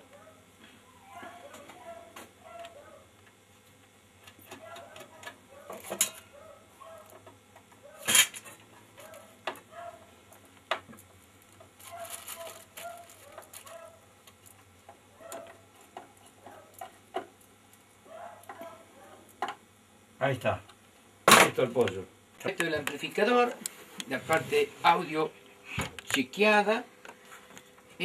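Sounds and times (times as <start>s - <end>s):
scraping rustle: 11.8s - 14.0s.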